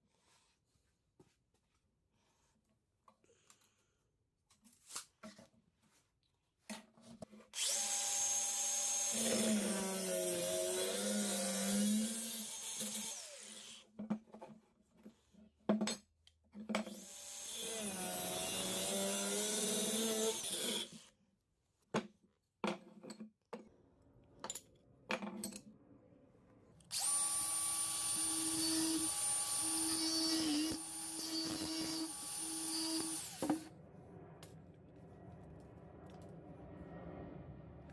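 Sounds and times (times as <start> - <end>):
power tool high whine: 7.6 - 13.7, 26.9 - 33.7
angle grinder cutting steel: 7.6 - 13.8, 26.9 - 33.7.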